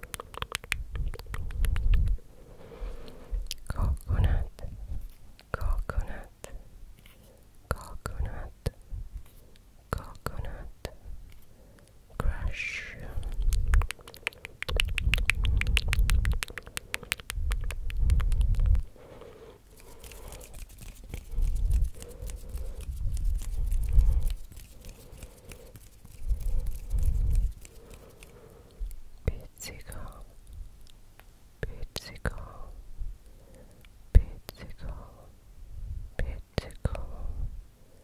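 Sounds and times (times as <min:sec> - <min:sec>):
hands rubbing on microphone: 0:13.1 - 0:18.9, 0:19.7 - 0:28.4.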